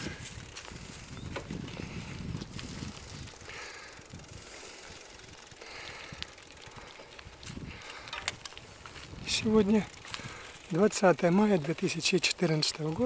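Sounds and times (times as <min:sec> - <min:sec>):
wind rumble on microphone: 0:00.0 - 0:04.6, 0:06.0 - 0:10.5
bicycle rattling on concrete: 0:00.0 - 0:13.0.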